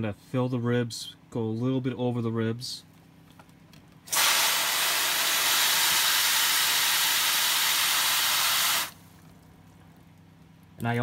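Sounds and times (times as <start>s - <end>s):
hose spraying water into tray: 4.1s - 8.9s.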